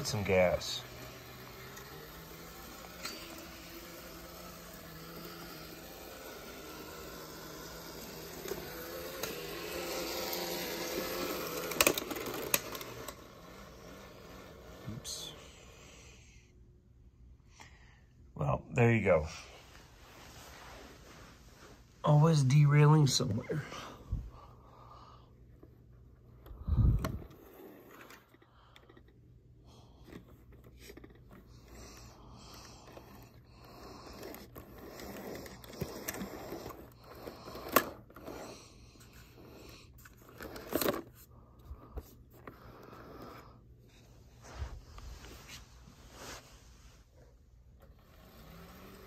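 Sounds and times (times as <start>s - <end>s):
model train motor whine: 0.0s - 16.2s, 29.7s - 41.2s, 47.8s - 49.0s.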